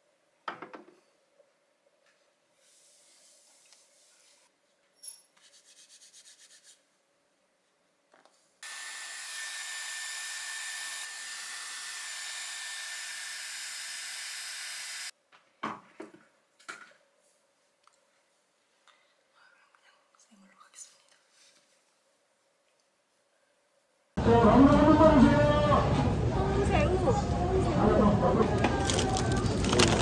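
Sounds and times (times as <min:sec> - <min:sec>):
hot-air hair styler blowing: 0:08.6 - 0:15.1.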